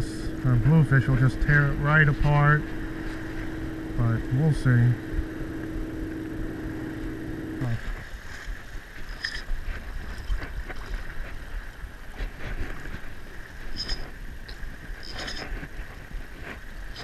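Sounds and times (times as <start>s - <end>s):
low wind rumble: 0.0s - 17.0s
steady hum: 0.0s - 17.0s
water noise around wader: 0.0s - 17.0s
fly line ticks and rustles: 12.1s - 17.0s.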